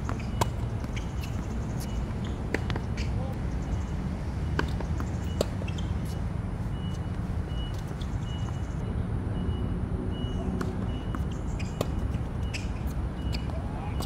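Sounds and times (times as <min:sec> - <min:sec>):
tennis ball hit by racquet: 0:02.2 - 0:03.1.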